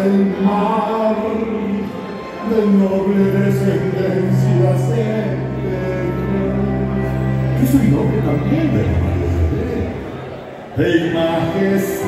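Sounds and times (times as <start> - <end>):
man singing: 0.0 - 12.0
music playing: 0.0 - 12.0.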